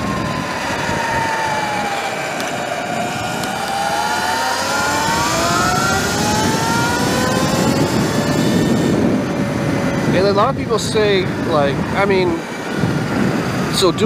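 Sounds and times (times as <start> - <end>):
electric motor whining: 0.0 - 10.2
wind and road noise: 0.0 - 14.0.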